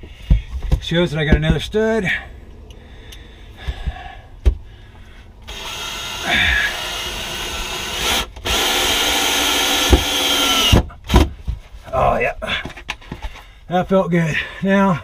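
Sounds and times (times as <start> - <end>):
power drill driving screw: 5.4 - 10.9.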